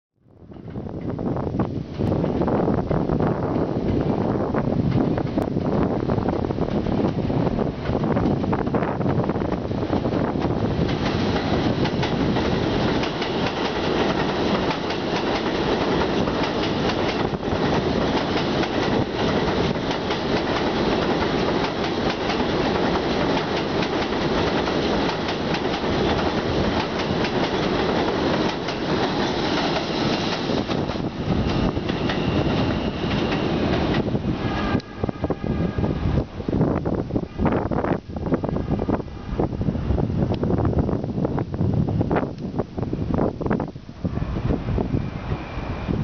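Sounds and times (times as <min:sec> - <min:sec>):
train rumbling on steel track: 0:00.3 - 0:46.0
wheels clicking over rail joints: 0:09.5 - 0:34.1.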